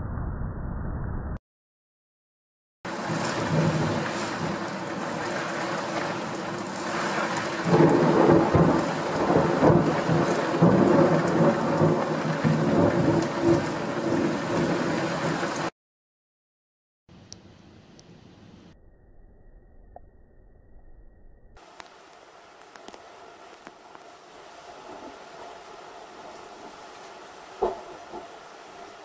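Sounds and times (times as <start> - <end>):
heavy rain: 2.9 - 15.7, 21.6 - 29.0
thunder rumbling: 2.9 - 15.7, 22.7 - 29.0.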